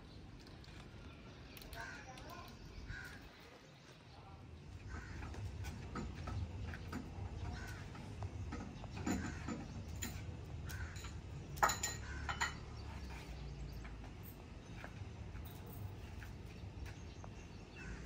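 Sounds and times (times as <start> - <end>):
crows cawing: 2.9 - 3.3, 4.8 - 5.8, 7.4 - 8.2, 10.6 - 11.2, 11.9 - 12.6, 17.7 - 18.0
metal pot clanking: 8.6 - 12.8
light metal clink: 9.0 - 12.8.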